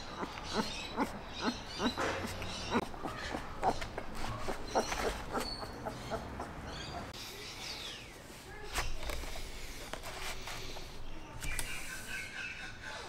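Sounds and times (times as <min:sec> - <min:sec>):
puppy squeaking and whining: 0:00.0 - 0:07.1.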